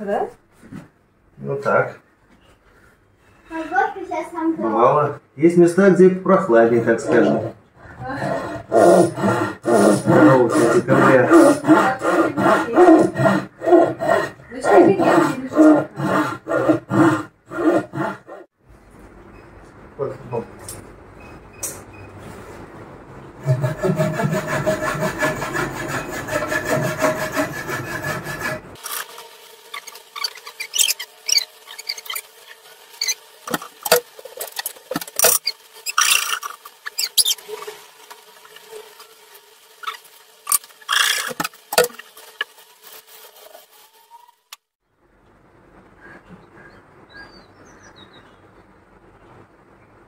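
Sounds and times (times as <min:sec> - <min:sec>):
file rasping on wood: 0:08.3 - 0:18.5, 0:23.4 - 0:38.7, 0:39.8 - 0:43.8.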